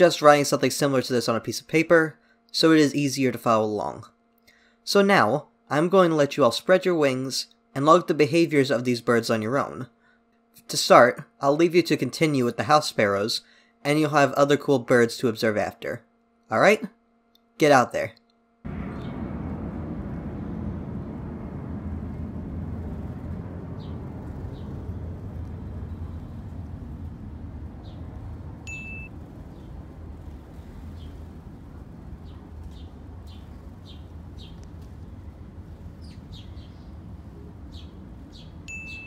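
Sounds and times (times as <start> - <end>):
low background rumble: 18.7 - 39.0
sparrows chirping: 23.8 - 26.7, 27.7 - 29.8, 30.4 - 39.0
short high beep: 28.7 - 29.1, 38.7 - 39.0.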